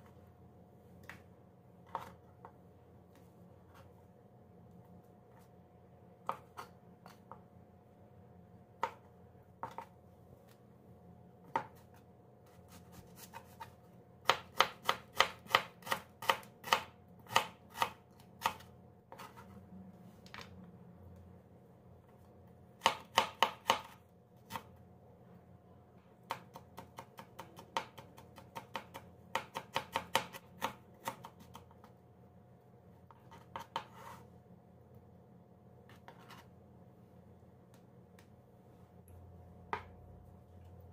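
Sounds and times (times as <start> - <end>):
knife chopping on plastic board: 6.2 - 7.5, 8.8 - 9.9, 11.4 - 12.0, 12.7 - 19.4, 22.8 - 24.7, 26.2 - 31.9, 33.1 - 34.2.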